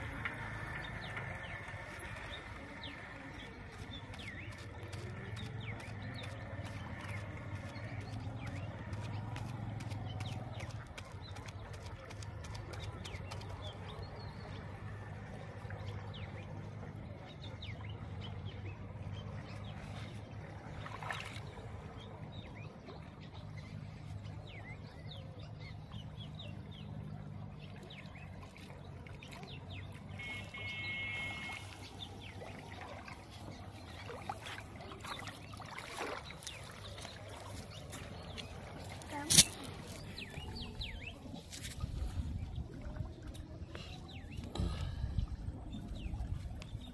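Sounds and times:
small birds chirping: 0.0 - 14.7, 20.9 - 46.9
water trickling and dripping: 25.9 - 46.9.

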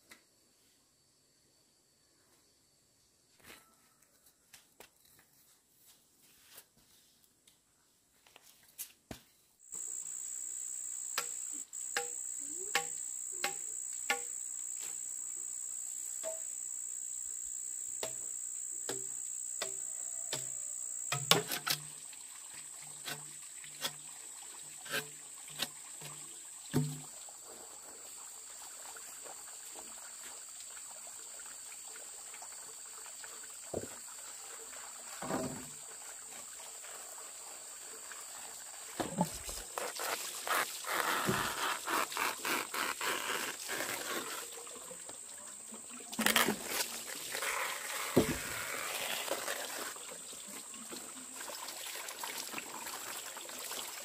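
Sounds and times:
insects whining: 9.7 - 21.3, 38.9 - 50.0
lower insect whine: 9.7 - 22.3.

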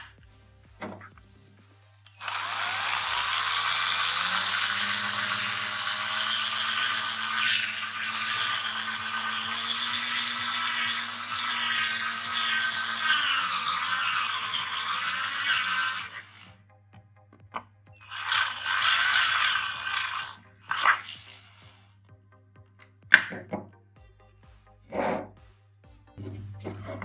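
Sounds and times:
electric drill grinding plastic: 0.0 - 1.3, 2.0 - 16.6, 17.6 - 22.1, 26.2 - 27.0.

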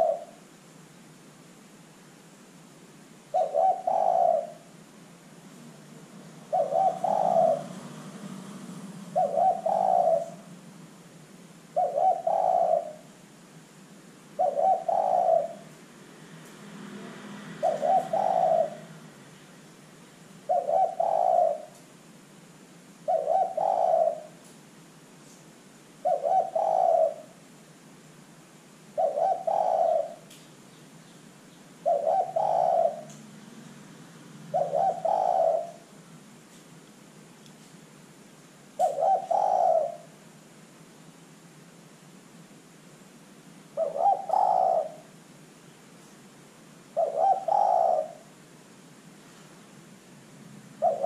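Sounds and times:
dove cooing: 0.0 - 0.5, 3.3 - 4.8, 6.4 - 10.7, 11.7 - 13.2, 14.3 - 15.8, 17.4 - 19.2, 20.4 - 21.8, 23.0 - 24.5, 26.0 - 27.4, 28.9 - 30.4, 31.8 - 33.4, 34.4 - 36.0, 38.8 - 40.2, 43.7 - 45.2, 46.8 - 48.4, 50.8 - 51.0.

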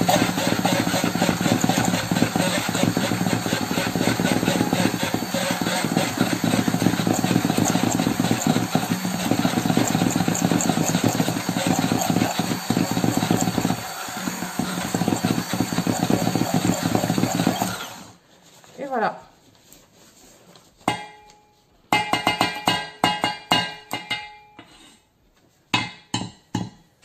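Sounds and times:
stick blender running: 0.0 - 18.2.

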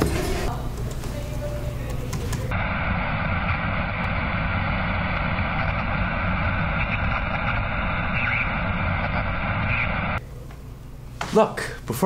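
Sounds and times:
electronic static hiss: 2.5 - 10.2.

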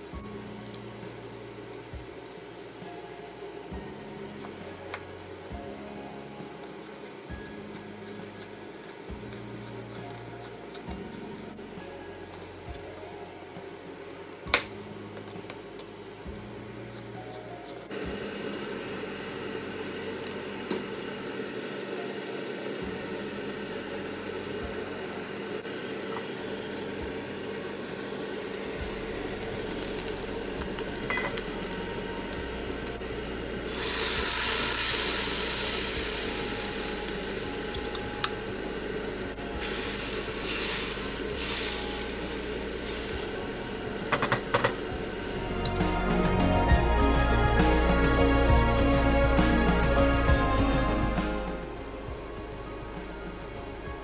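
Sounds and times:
steady low hum: 22.8 - 49.4
curry paste sizzling in hot oil: 33.6 - 43.7.

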